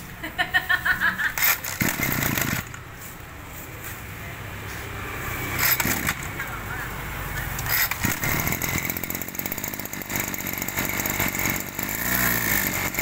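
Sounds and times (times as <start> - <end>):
brush cutter engine idling: 1.4 - 3.2, 5.6 - 13.0.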